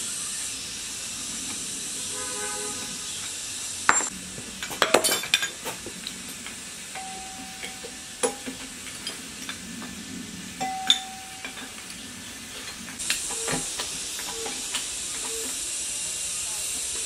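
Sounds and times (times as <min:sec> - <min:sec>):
steady hiss: 0:00.0 - 0:17.0
wrenches clinking on metal: 0:03.9 - 0:09.9, 0:10.6 - 0:15.5
short metallic ring: 0:07.0 - 0:08.6, 0:10.6 - 0:11.8.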